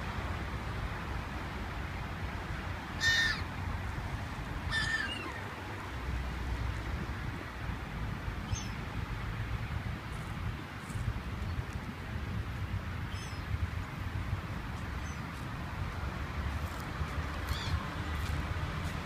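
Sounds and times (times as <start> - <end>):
loud bird calls: 3.0 - 3.5, 4.7 - 5.4.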